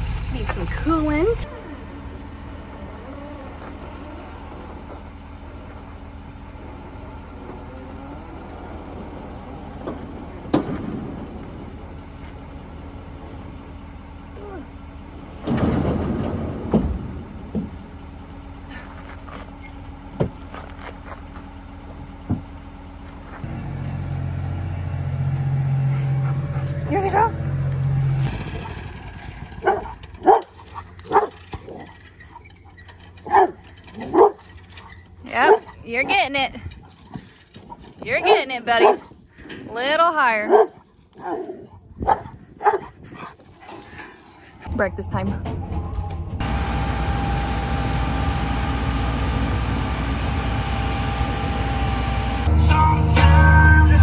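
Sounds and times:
low engine hum: 0.0s - 54.0s
dog barking: 29.6s - 30.5s, 31.1s - 31.4s, 33.2s - 34.4s, 35.4s - 35.7s, 38.2s - 39.1s, 40.5s - 42.9s.

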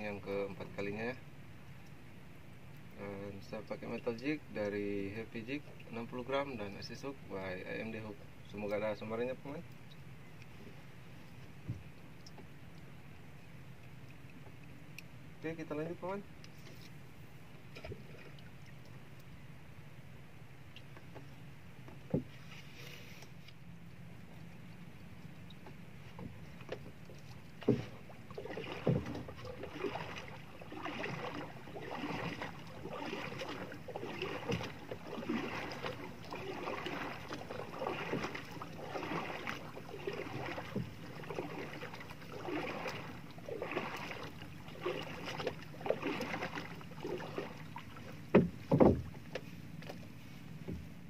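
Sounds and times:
small waves lapping against hull: 0.0s - 51.0s
sharp knocks on boat hull: 22.0s - 22.3s, 27.6s - 28.0s, 28.8s - 29.3s, 48.3s - 49.4s.

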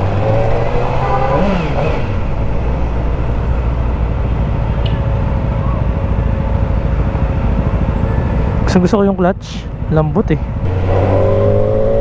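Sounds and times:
motorcycle engine idling: 3.8s - 10.6s.

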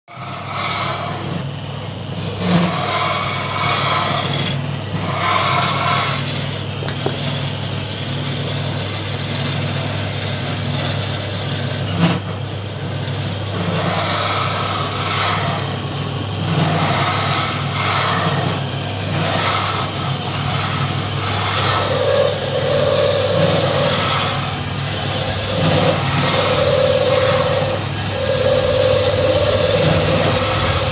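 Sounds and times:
saw blade cutting wood hissing: 0.1s - 1.4s, 2.2s - 6.4s, 13.1s - 30.9s
bandsaw humming: 0.1s - 30.9s.

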